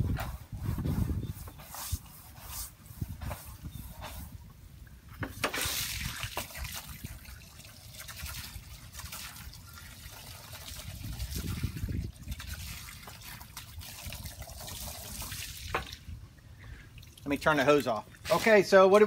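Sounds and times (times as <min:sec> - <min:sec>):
hose spraying water on siding: 0:05.3 - 0:16.0, 0:17.2 - 0:19.0
water trickling onto pavement: 0:05.6 - 0:19.0.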